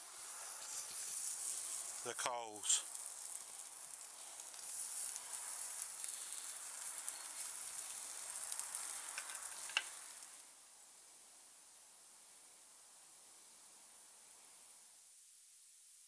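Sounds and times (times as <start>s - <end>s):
sharp crackles: 0.0s - 10.5s
steaks sizzling on charcoal: 0.0s - 16.0s.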